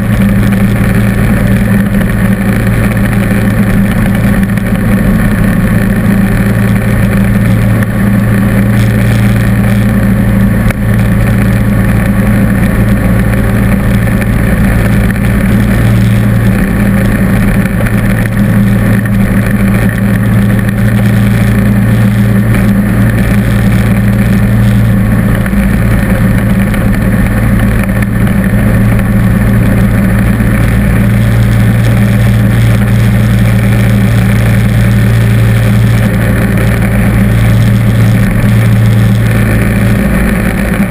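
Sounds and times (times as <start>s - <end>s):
lawn tractor engine humming: 0.0s - 40.9s.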